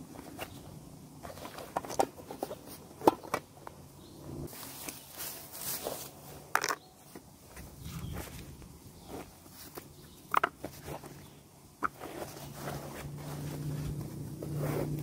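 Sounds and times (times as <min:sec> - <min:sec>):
camping kit clicks and knocks: 0:00.1 - 0:03.8, 0:05.7 - 0:15.0
canvas rustling: 0:04.5 - 0:06.5, 0:07.1 - 0:15.0.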